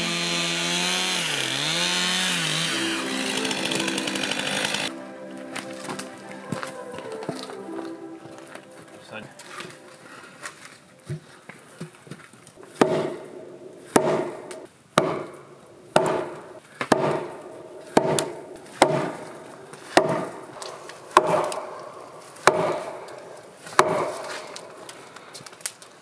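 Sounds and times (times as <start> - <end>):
axe striking log: 12.7 - 15.4, 16.0 - 19.2, 19.9 - 20.3, 21.1 - 21.6, 22.4 - 22.9, 23.8 - 24.2.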